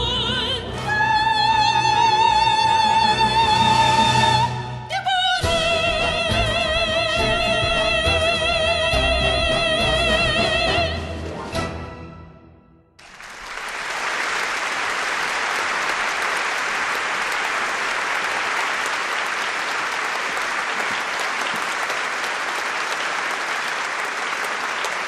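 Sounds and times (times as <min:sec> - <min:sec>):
music: 0:00.0 - 0:13.0
audience applause: 0:13.0 - 0:25.0.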